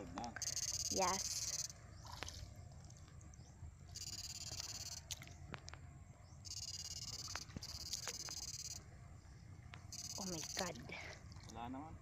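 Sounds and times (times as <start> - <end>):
high-pitched electric buzz: 0.4 - 1.8, 3.9 - 5.1, 6.4 - 8.9, 9.8 - 10.8.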